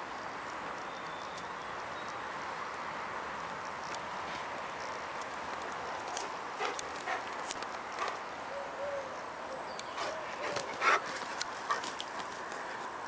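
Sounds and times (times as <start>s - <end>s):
paws tapping on mulch: 3.4s - 8.3s, 9.8s - 13.0s.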